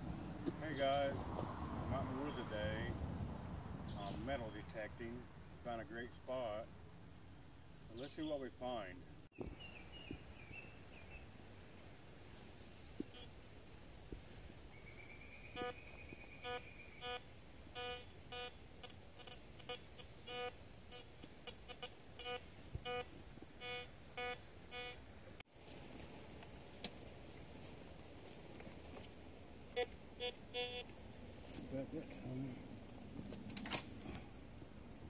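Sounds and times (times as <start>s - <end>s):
metal detector beeps: 13.1s - 13.3s, 15.6s - 15.8s, 16.4s - 17.2s, 17.8s - 25.0s, 29.8s - 30.9s.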